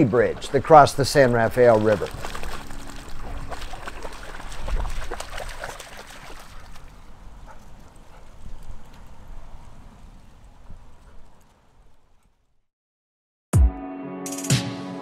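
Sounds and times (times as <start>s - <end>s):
dog splashing through water: 0.2s - 8.6s.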